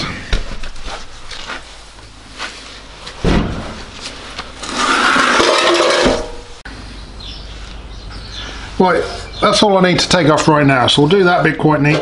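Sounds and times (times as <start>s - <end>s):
wheel thumping on concrete: 3.2s - 6.5s
wheel scraping on concrete: 4.5s - 6.4s.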